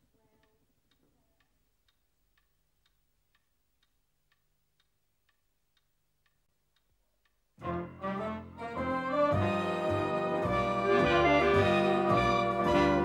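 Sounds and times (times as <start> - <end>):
clock ticking: 0.3 - 8.0.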